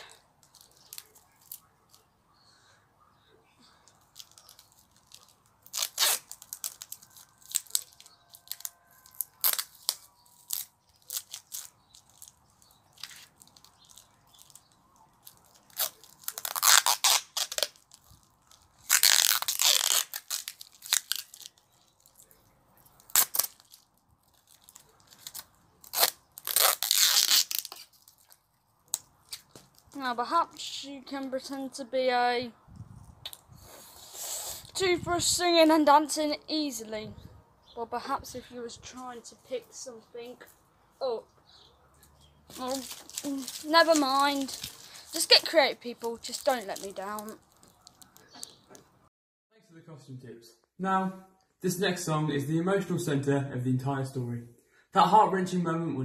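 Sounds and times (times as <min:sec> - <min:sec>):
sticky tape ripping off roll: 0:04.1 - 0:21.6, 0:23.0 - 0:30.0, 0:42.5 - 0:48.5.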